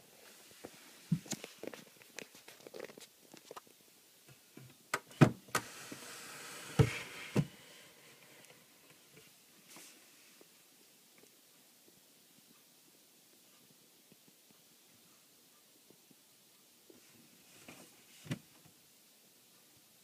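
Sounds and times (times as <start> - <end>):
drawer sliding: 5.2 - 8.5.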